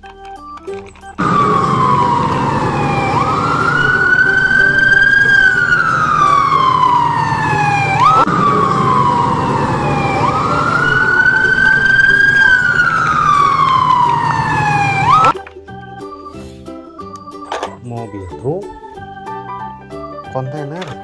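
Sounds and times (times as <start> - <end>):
low engine rumble: 1.2 - 15.3
fire engine siren wailing: 1.2 - 15.4.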